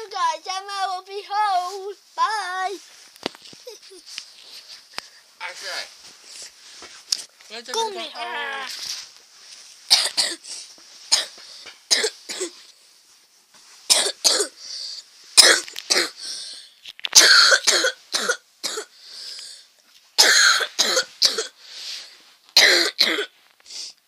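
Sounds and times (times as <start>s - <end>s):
person coughing: 9.9s - 10.4s, 11.1s - 12.6s, 13.9s - 14.6s, 15.4s - 16.2s, 17.2s - 18.9s, 20.2s - 21.6s, 22.6s - 23.3s.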